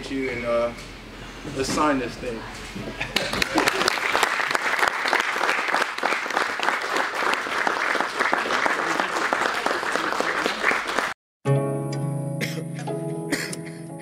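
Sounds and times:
audience applauding: 3.1 - 11.2
plucked-string music: 11.5 - 14.0.

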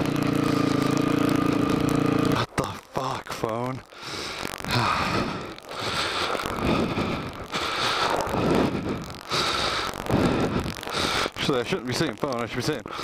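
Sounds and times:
heavy laboured breathing: 3.9 - 11.4.

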